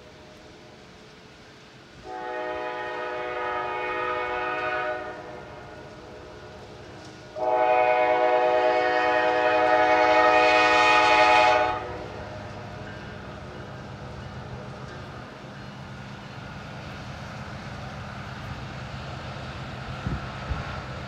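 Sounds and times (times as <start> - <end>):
low rumble of train: 0.0 - 21.0
locomotive air horn blasts: 2.0 - 5.8, 7.4 - 12.4.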